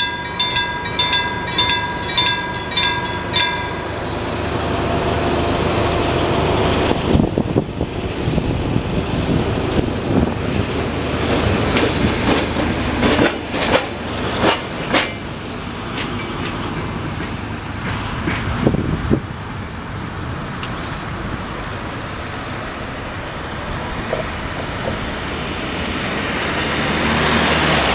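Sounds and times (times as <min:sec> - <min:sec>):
train wheels clacking on rails: 0:00.0 - 0:05.0, 0:09.9 - 0:19.2, 0:23.8 - 0:26.4
train rumbling past: 0:00.0 - 0:27.9.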